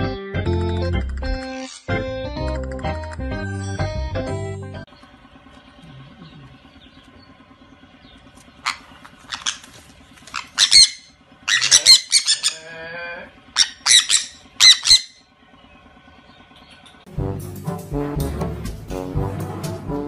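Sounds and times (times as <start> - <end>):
parrots squawking: 1.5 - 1.9, 8.5 - 15.2
lower wavering bird call: 10.3 - 12.7, 13.4 - 15.3.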